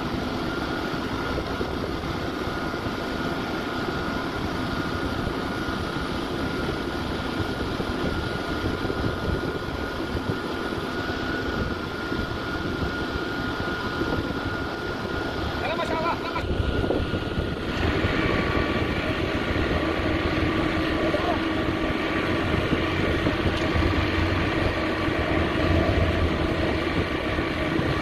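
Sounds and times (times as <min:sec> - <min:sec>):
concrete pump machinery drone: 0:00.0 - 0:28.0
steady high whine: 0:00.0 - 0:28.0.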